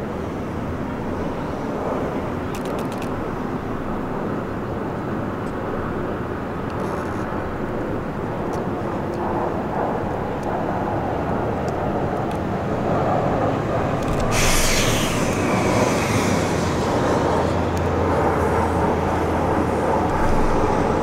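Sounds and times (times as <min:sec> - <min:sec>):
subway train rumbling: 0:12.2 - 0:21.0.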